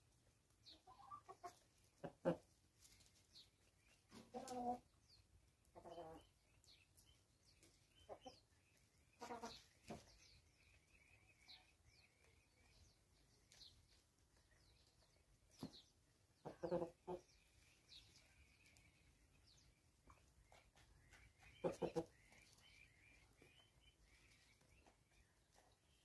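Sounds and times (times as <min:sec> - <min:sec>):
chickens clucking: 0:00.1 - 0:26.0.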